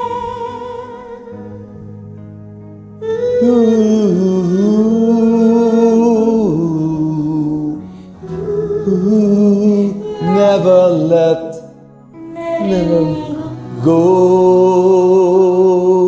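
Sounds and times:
karaoke backing track: 3.0s - 16.0s
woman and man singing duet: 7.6s - 11.6s, 12.3s - 16.0s.

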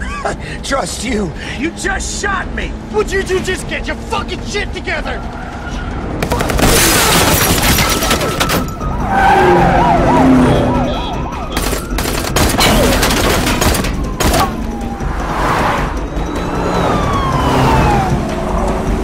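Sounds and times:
car traffic: 0.0s - 19.0s
police siren yelping: 7.8s - 13.1s, 13.9s - 15.3s, 16.0s - 18.6s.

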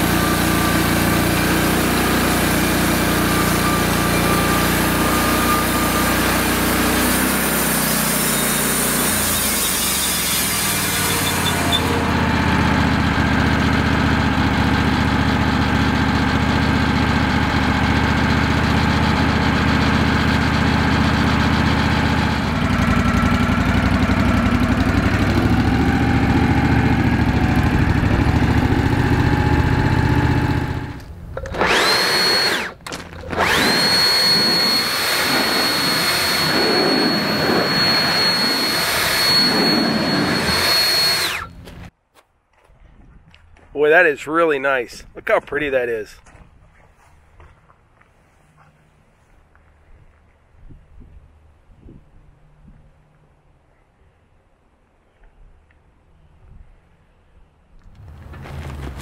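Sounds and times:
saw blade hiss cutting log: 0.0s - 12.0s, 33.4s - 41.6s
band sawmill engine running: 0.0s - 41.9s, 57.8s - 59.0s.

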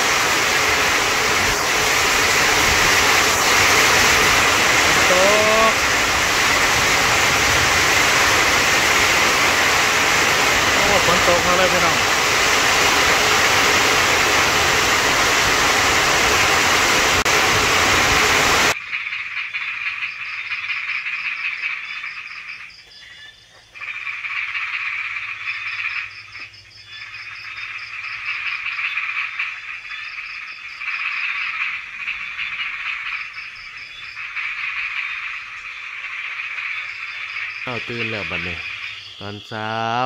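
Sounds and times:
heavy rain on a metal roof: 0.0s - 18.8s
frogs calling in trills: 1.6s - 7.2s, 7.8s - 12.8s, 18.7s - 40.0s.

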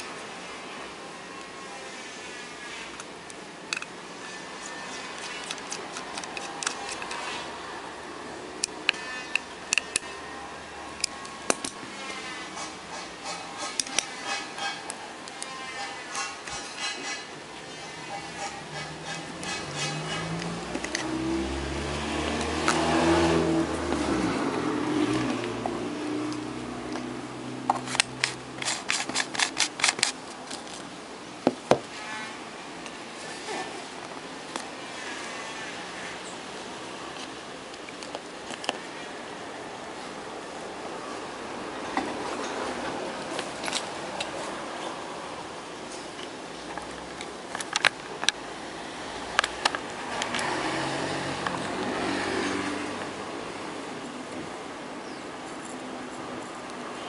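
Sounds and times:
engine hum: 17.5s - 31.2s, 41.5s - 57.0s.

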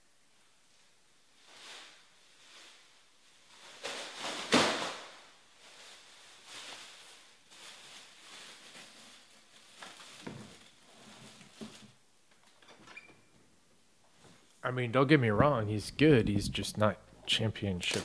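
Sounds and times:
rustling handling noises: 5.3s - 12.6s, 15.4s - 18.0s.

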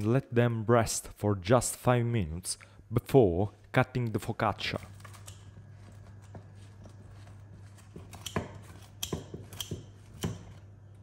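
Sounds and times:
scissors snipping bread: 5.0s - 10.7s.

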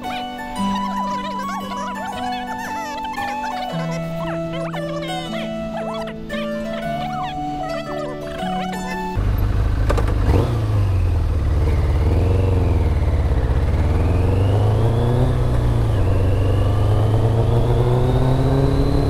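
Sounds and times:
background music: 0.0s - 9.3s
vehicle engine running: 0.0s - 19.0s.

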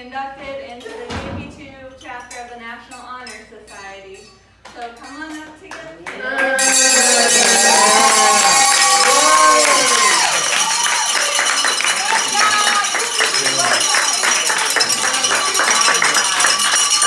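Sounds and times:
students clapping and cheering: 6.1s - 17.0s.

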